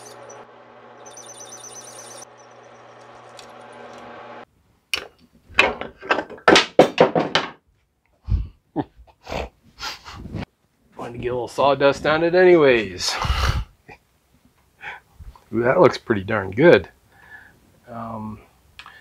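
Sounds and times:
drill bit squealing in metal: 0.0 - 0.4
drill press motor humming: 0.0 - 4.4.

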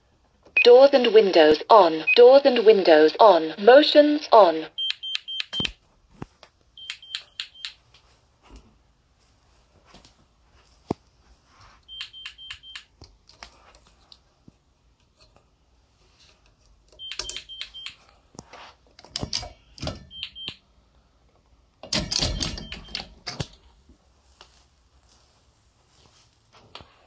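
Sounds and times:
alarm panel beeping: 4.7 - 5.7, 6.8 - 7.8, 11.9 - 12.9, 17.0 - 18.0, 20.0 - 20.6, 22.1 - 23.1
metal gate clicks and knocks: 21.8 - 23.5.

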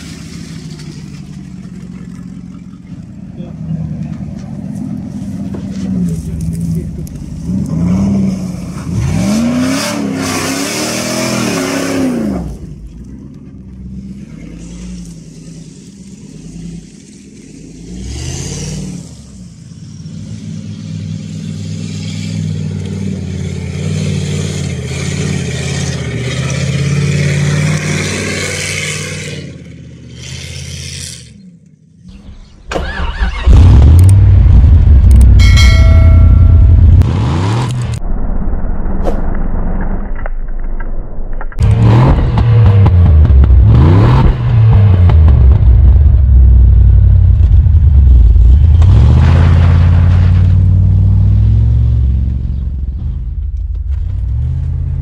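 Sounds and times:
engine revving: 5.5 - 13.0, 14.1 - 31.5, 32.1 - 38.0, 41.5 - 55.0
loud deep exhaust: 32.1 - 40.3, 41.0 - 55.0.

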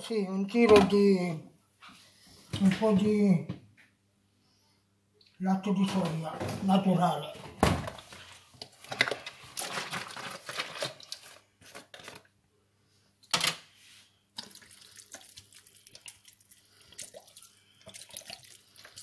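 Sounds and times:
liquid splashing on vegetables: 14.4 - 19.0.

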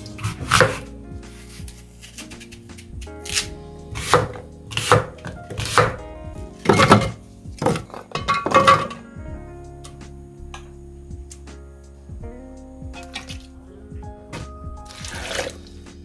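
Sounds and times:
knife cutting apple on board: 0.0 - 6.0
quiet background music: 0.0 - 16.0.

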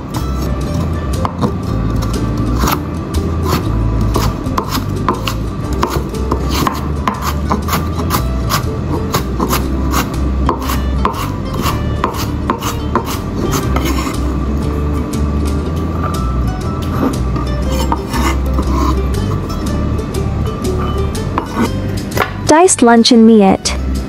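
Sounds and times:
background music: 0.0 - 24.0
knife chopping on wooden board: 1.2 - 2.8, 3.4 - 14.2, 17.7 - 19.0, 21.4 - 22.4.

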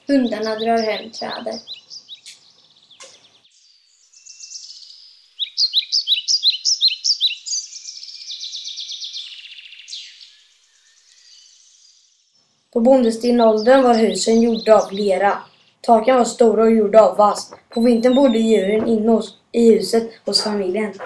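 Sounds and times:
bird trill: 0.0 - 16.4, 17.4 - 19.5
songbirds chirping: 0.0 - 21.0
falling bird whistle: 5.4 - 11.6.

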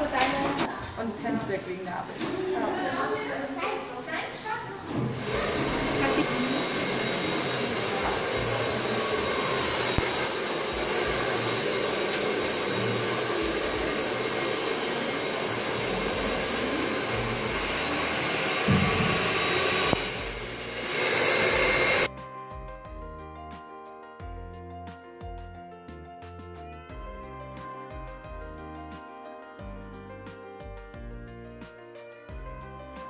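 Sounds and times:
hair dryer blowing: 4.9 - 22.1.

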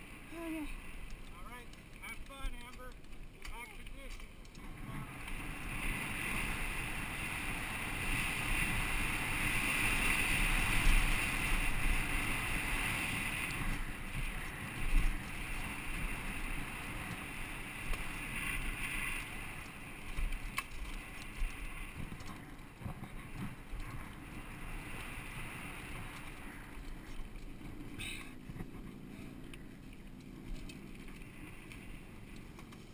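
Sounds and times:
bike rattling over bumps: 0.0 - 32.9
wind rushing over microphone: 4.6 - 29.8.

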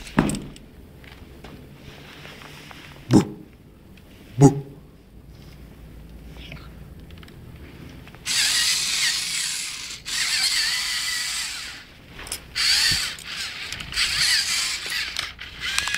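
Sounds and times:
robot servo motors whirring: 8.2 - 15.9.

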